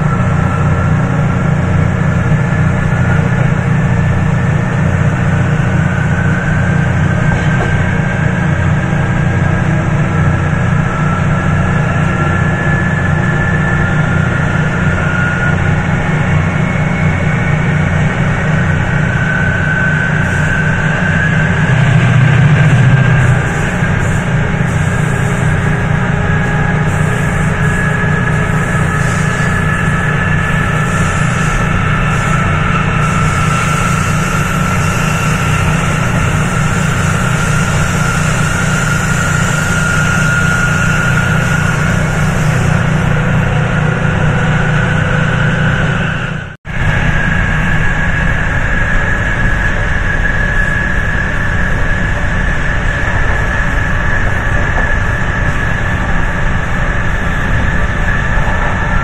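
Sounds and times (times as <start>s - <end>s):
diesel engine rumbling: 0.0s - 59.0s
high whine rising in pitch: 0.0s - 59.0s.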